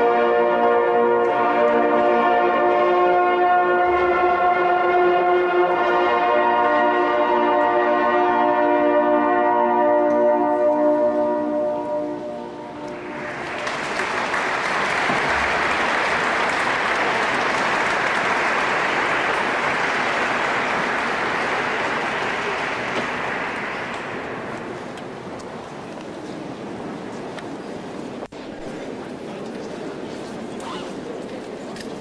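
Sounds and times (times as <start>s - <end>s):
hunting horns holding a chord: 0.0s - 25.8s
audience applauding: 12.9s - 26.0s.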